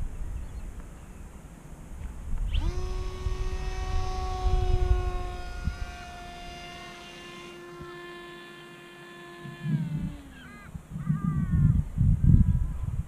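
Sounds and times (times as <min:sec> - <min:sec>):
wind rumble on microphone: 0:00.0 - 0:06.8, 0:09.4 - 0:13.0
model plane motor whine: 0:02.0 - 0:13.0.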